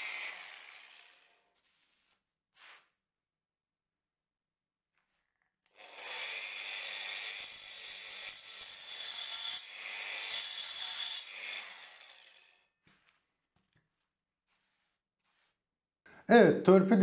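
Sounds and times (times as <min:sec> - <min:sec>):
angle grinder cutting wood: 0:00.0 - 0:02.0, 0:05.7 - 0:12.6.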